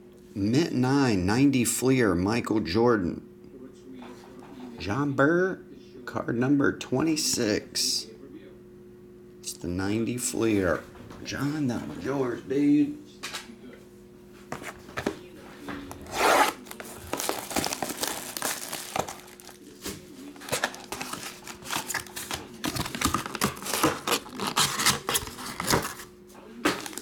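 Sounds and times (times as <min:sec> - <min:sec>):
card box tearing open: 0:16.0 - 0:26.1, 0:26.7 - 0:27.0
foil pack crinkling: 0:16.0 - 0:27.0.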